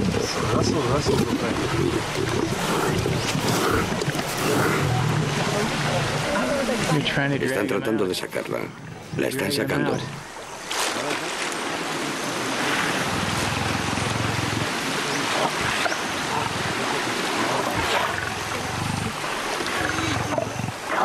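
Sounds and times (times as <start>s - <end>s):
lions growling low: 0.2s - 6.2s, 12.6s - 21.0s.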